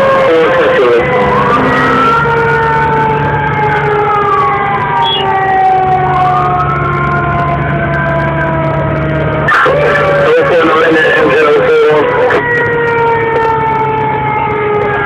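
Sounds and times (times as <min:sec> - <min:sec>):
fire engine siren wailing: 0:00.0 - 0:15.0
second siren tone falling: 0:01.0 - 0:08.8.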